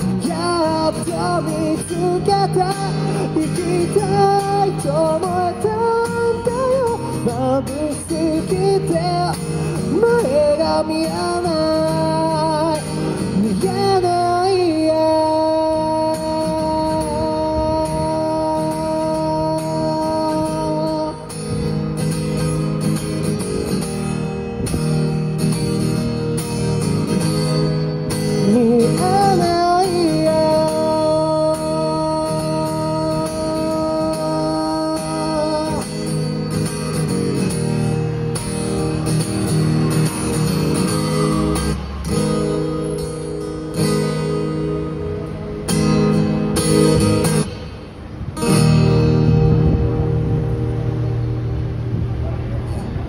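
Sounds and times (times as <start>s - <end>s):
acoustic guitar strumming: 0.0s - 53.0s
man singing wordless held notes: 28.4s - 35.9s.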